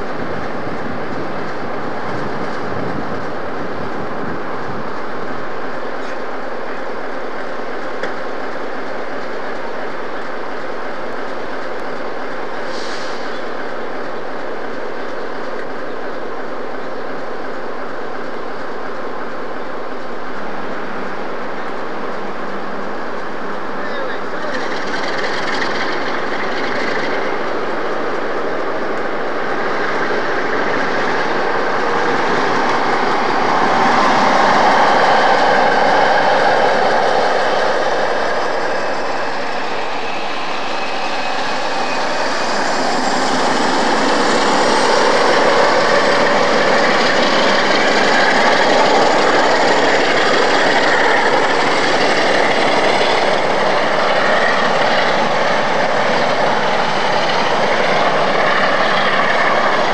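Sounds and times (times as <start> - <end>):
diesel locomotive engine working hard: 0.0 - 59.9.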